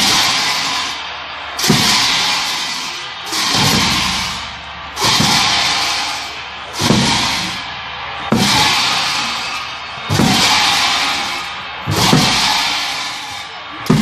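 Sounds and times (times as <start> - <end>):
hand cymbals crashing: 1.6 - 7.7
drum beat: 3.4 - 6.0, 6.8 - 8.8, 10.1 - 10.7, 11.8 - 12.5.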